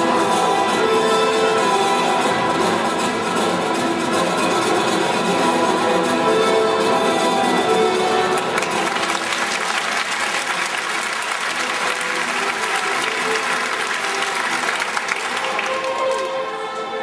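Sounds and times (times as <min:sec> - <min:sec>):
audience applauding: 0:08.4 - 0:16.7.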